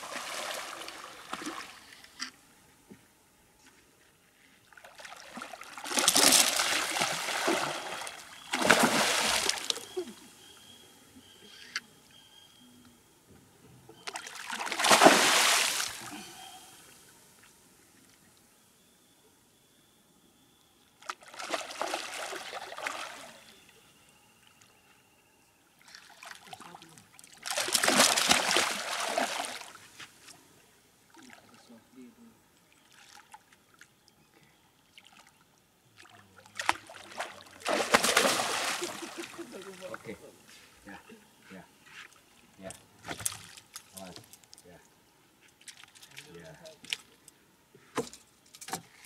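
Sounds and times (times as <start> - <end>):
fish splashing in water: 5.0 - 10.0, 14.0 - 16.1, 21.1 - 23.3, 27.4 - 29.8, 36.6 - 39.6.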